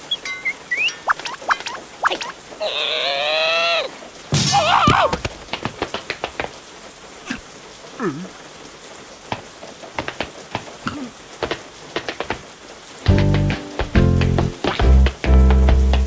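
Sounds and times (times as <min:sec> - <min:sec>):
cartoon rain drops tapping: 0:00.0 - 0:16.0
cartoon character squealing: 0:02.1 - 0:05.2.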